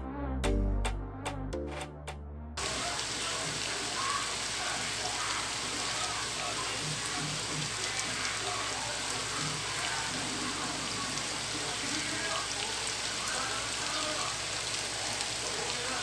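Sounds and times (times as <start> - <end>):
electronic music: 0.0 - 2.6
meat sizzling in a pot: 2.6 - 16.0.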